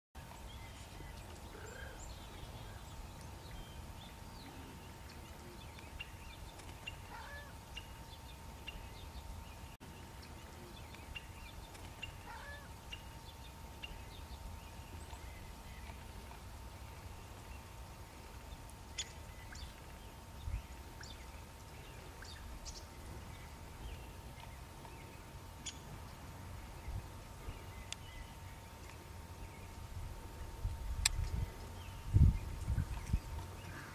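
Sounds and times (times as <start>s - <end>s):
faint steady tone: 0.2s - 33.9s
low outdoor rumble: 0.2s - 33.9s
bird chirps: 18.9s - 19.8s.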